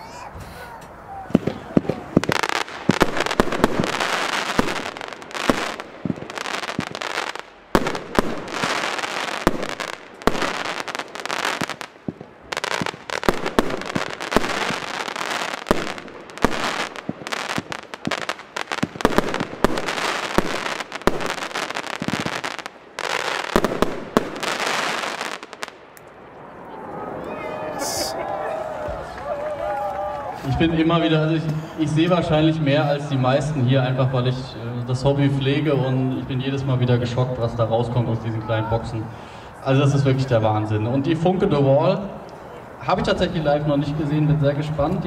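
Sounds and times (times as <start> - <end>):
fireworks shots bursting: 1.3 - 25.9
crackling firework stars: 1.3 - 30.5.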